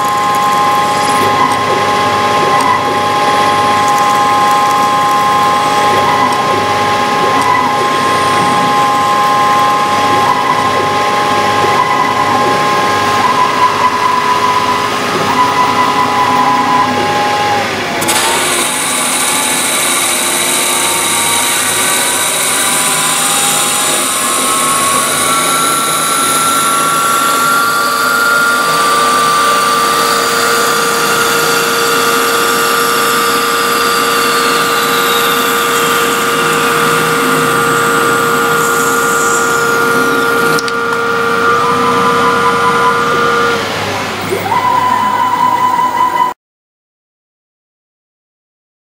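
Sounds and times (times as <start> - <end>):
drill boring metal: 0.0 - 46.0
lathe spindle whine: 0.0 - 46.3
flood coolant: 17.7 - 44.4
parting tool cutting: 18.0 - 43.6.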